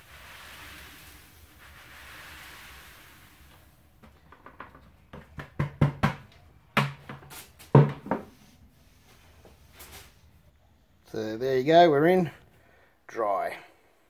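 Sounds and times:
plastic bucket knocking on metal: 0:04.2 - 0:08.3.

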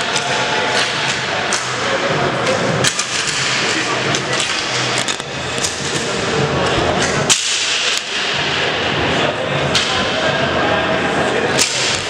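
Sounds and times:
sticks striking ball: 0:07.3 - 0:08.1.

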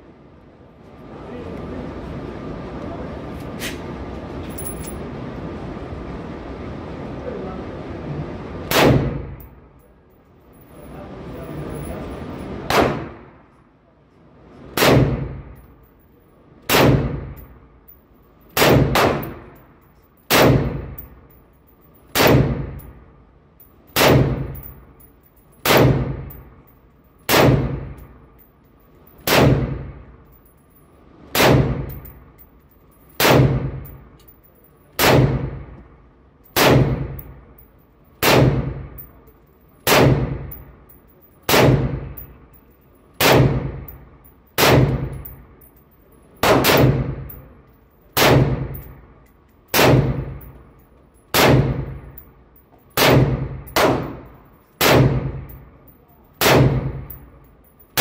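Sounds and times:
rifle shots echoing indoors: 0:08.6 - 0:09.5, 0:12.7 - 0:13.4, 0:14.7 - 0:15.6, 0:16.6 - 0:17.5, 0:18.5 - 0:19.6, 0:20.3 - 0:21.2, 0:22.1 - 0:23.0, 0:23.9 - 0:24.8, 0:25.6 - 0:26.6, 0:27.2 - 0:28.1, 0:29.1 - 0:30.0, 0:31.3 - 0:32.2, 0:33.1 - 0:34.0, 0:34.9 - 0:35.8, 0:36.4 - 0:37.4, 0:38.2 - 0:39.1, 0:39.8 - 0:40.7, 0:41.4 - 0:42.3, 0:43.1 - 0:45.3, 0:46.4 - 0:47.4, 0:48.1 - 0:49.0, 0:49.7 - 0:50.6, 0:51.3 - 0:52.2, 0:52.9 - 0:55.6, 0:56.3 - 0:57.2.

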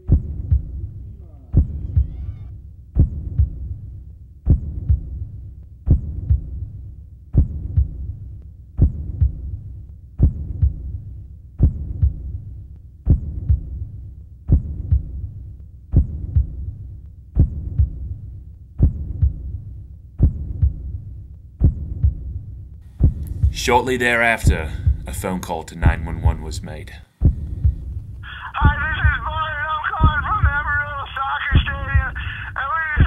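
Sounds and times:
heartbeat double thump: 0:00.0 - 0:03.8, 0:04.4 - 0:05.3, 0:05.9 - 0:06.7, 0:07.3 - 0:08.1, 0:08.8 - 0:09.6, 0:10.2 - 0:11.0, 0:11.6 - 0:12.4, 0:13.1 - 0:13.9, 0:14.5 - 0:15.3, 0:15.9 - 0:16.8, 0:17.4 - 0:18.2, 0:18.8 - 0:19.6, 0:20.2 - 0:25.2, 0:25.8 - 0:30.9, 0:31.5 - 0:33.0.

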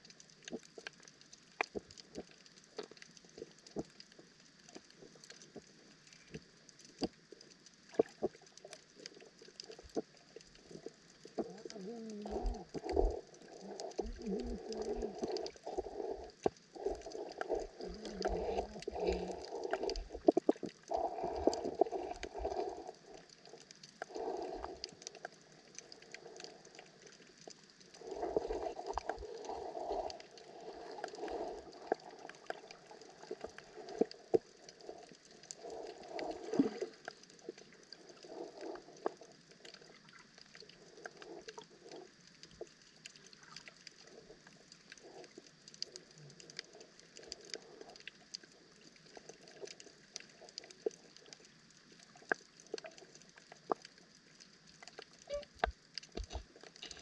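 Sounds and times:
underwater clicks and crackles: 0:00.0 - 0:57.0
muffled rumbling and bubbling: 0:01.5 - 0:57.0.

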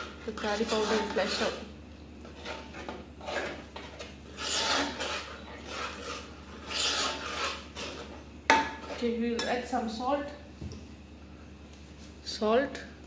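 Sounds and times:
metal spoon scraping a pot: 0:00.0 - 0:09.6.

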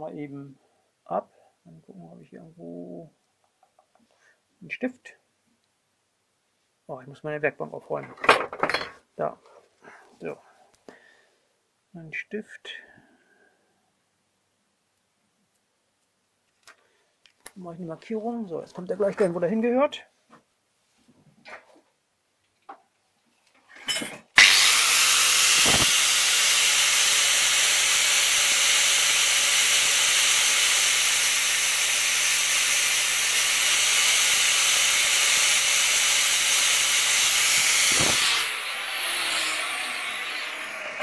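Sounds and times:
grinder cutting steel: 0:24.4 - 0:41.0.

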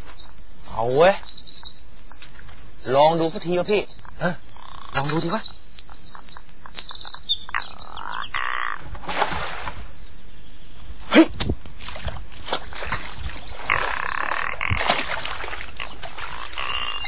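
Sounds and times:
frogs croaking: 0:00.0 - 0:09.1, 0:09.7 - 0:17.0
drawn-out rising frog call: 0:05.8 - 0:08.9, 0:13.6 - 0:17.0.

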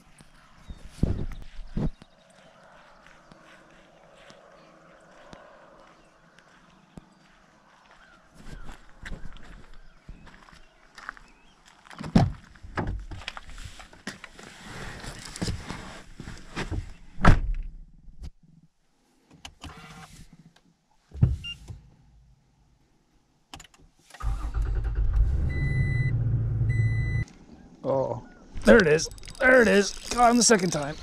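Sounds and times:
engine rumbling: 0:24.2 - 0:31.0.

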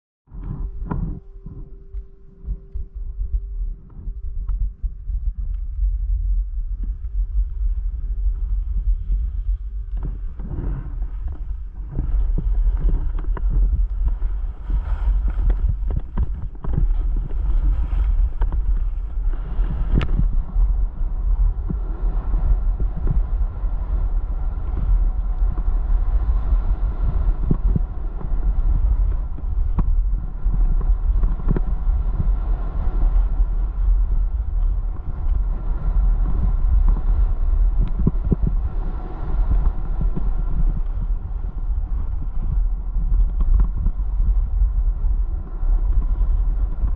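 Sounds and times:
wind rushing over microphone: 0:00.2 - 0:46.9
skis scraping on snow: 0:09.0 - 0:20.4.

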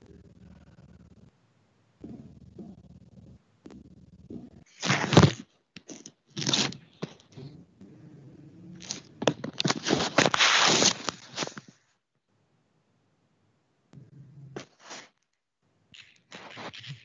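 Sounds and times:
rustling and scraping noise: 0:04.3 - 0:07.6, 0:08.7 - 0:11.9, 0:14.6 - 0:15.2, 0:16.0 - 0:17.0.

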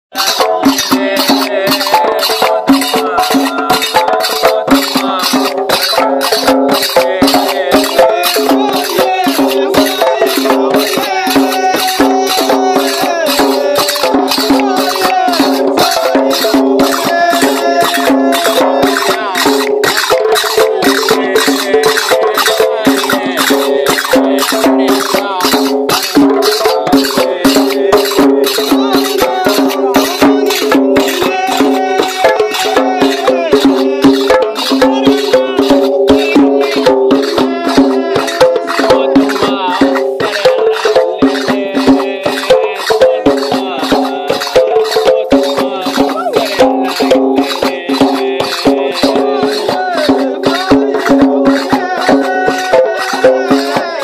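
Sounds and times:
hand drums beating: 0:00.1 - 0:54.0
men singing: 0:00.1 - 0:54.0.

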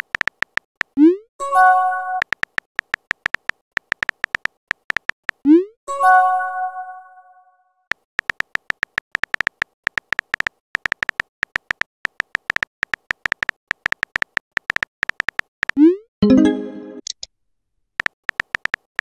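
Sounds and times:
keyboard typing ticks: 0:00.0 - 0:01.2, 0:02.1 - 0:05.7, 0:07.9 - 0:16.0, 0:18.0 - 0:19.0
message sent chime: 0:16.2 - 0:17.1.

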